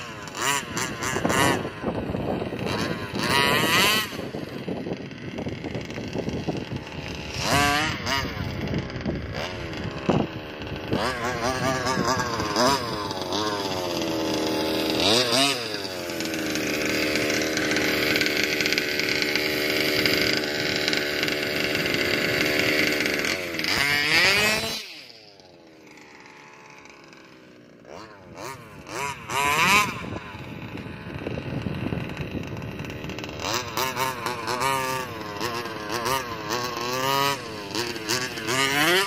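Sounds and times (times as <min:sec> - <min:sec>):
two-stroke engine revving: 0:00.0 - 0:39.0.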